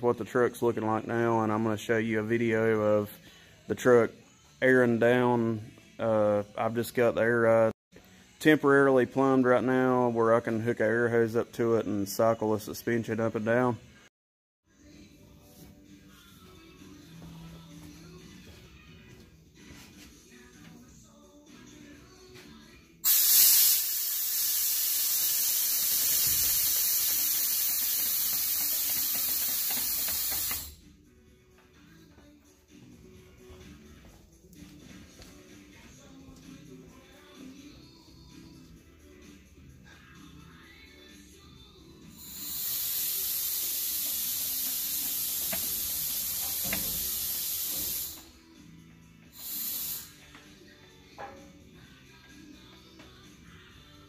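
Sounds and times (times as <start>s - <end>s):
compressed air hissing: 23.0s - 30.8s, 42.1s - 48.4s, 49.3s - 50.6s.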